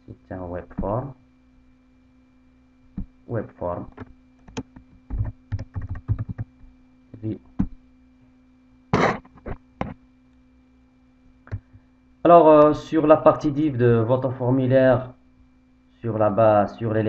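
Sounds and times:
typing on a computer keyboard: 4.4s - 6.6s.

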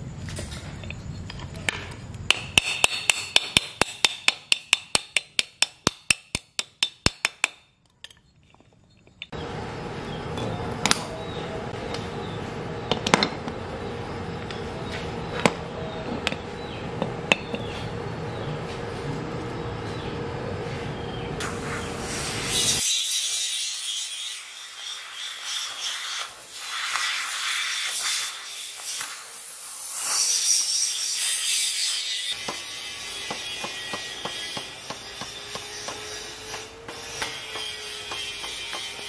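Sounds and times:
metal parts clicking and clinking: 7.7s - 9.4s
steady hum: 9.0s - 22.8s.

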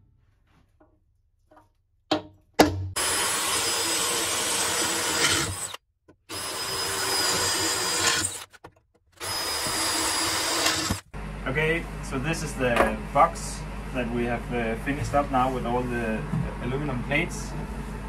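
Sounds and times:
cordless drill whining through metal: 3.0s - 8.6s, 9.2s - 11.0s.

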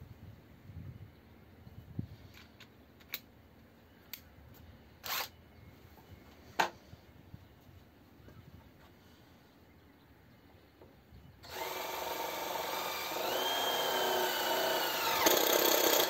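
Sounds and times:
drill bit rattling in chuck: 11.5s - 16.0s.

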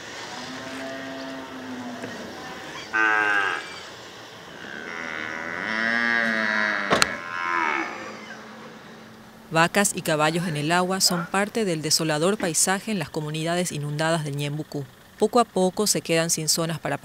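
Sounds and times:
cattle mooing: 0.1s - 3.9s, 4.5s - 12.4s.

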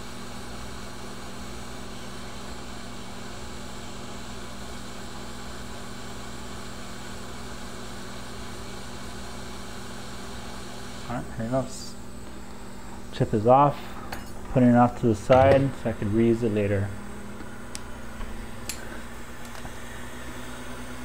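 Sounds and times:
hot air blower hiss: 8.5s - 21.0s
low steady hum: 11.0s - 21.0s.

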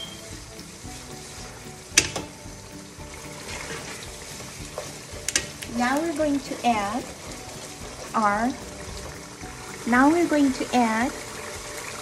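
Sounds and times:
food sizzling in oil: 0.0s - 12.0s
soft background music: 0.0s - 12.0s
spatula stirring: 3.0s - 5.6s.

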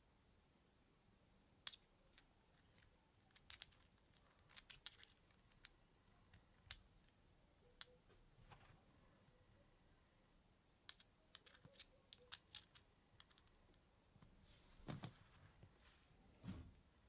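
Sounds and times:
small parts clicking: 1.6s - 8.1s, 10.8s - 13.9s.

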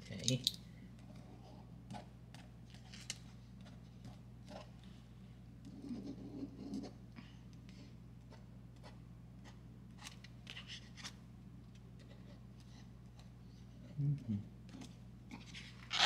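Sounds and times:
pencil scratching on paper: 5.6s - 7.0s.

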